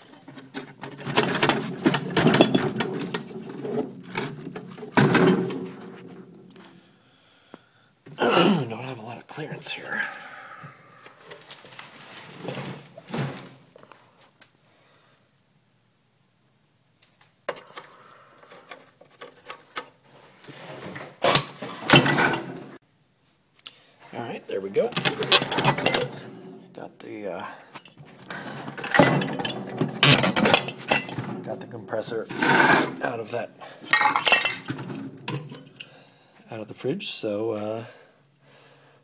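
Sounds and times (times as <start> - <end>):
metal scraping and rattling: 0.0 - 6.7, 18.6 - 22.8, 24.7 - 26.9, 27.8 - 35.9.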